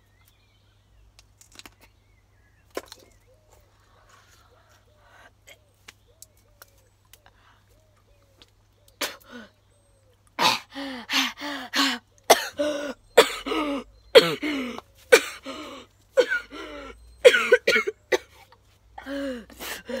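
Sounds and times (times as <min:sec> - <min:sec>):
boy coughing: 0:12.3 - 0:15.5, 0:16.2 - 0:16.6, 0:17.2 - 0:18.4.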